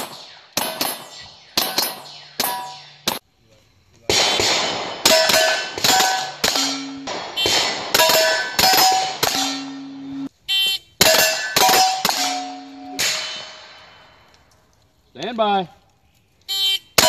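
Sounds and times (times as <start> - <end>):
steel plate ringing clang: 0.0 - 3.2, 4.6 - 10.3, 11.0 - 14.3
gunshots: 0.0 - 3.3, 4.1 - 10.3.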